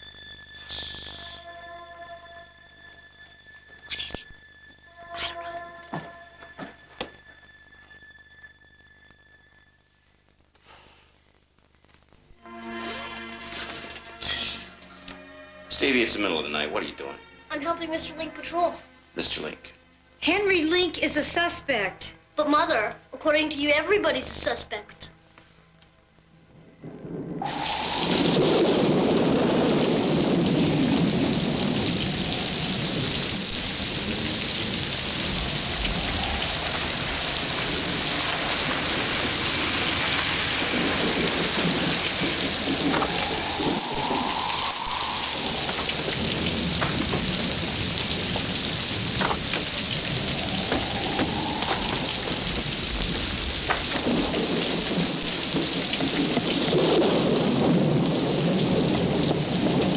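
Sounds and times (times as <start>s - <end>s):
heavy rain falling: 26.5s - 59.9s
rolling thunder: 26.5s - 59.9s.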